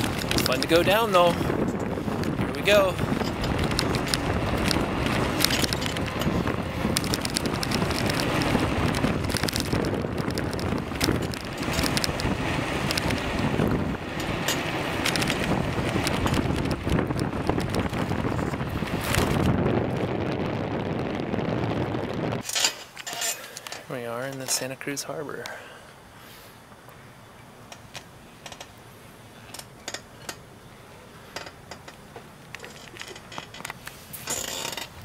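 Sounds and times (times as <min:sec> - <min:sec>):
bicycle clicks and rattles: 0:00.0 - 0:20.2, 0:22.4 - 0:24.7, 0:27.7 - 0:28.8, 0:29.4 - 0:30.5, 0:31.3 - 0:35.0
wind buffeting microphone: 0:00.0 - 0:22.4.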